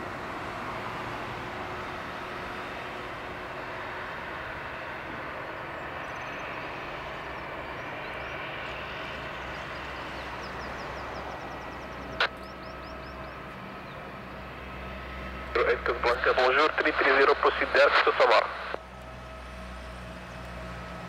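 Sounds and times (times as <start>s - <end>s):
jet aircraft noise: 2.6s - 18.8s.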